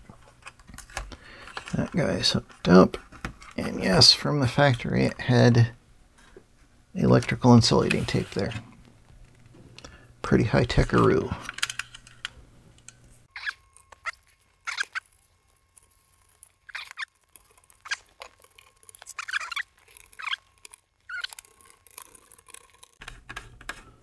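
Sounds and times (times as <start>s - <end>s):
short high squeaky chirps: 13.3s - 15.2s, 16.6s - 17.2s, 19.1s - 21.5s.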